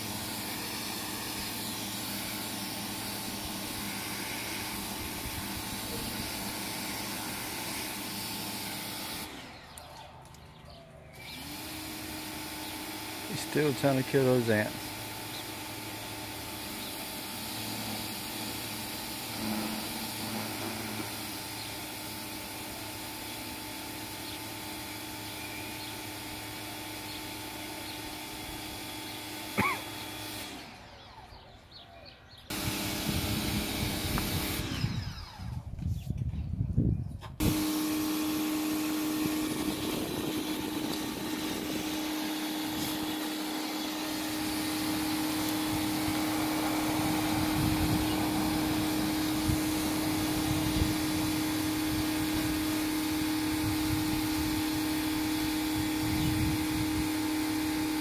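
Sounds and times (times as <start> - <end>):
pressure washer spraying: 0.0 - 9.8, 11.2 - 30.8, 32.5 - 35.1, 37.4 - 58.0
rumbling and buffeting: 32.5 - 57.4.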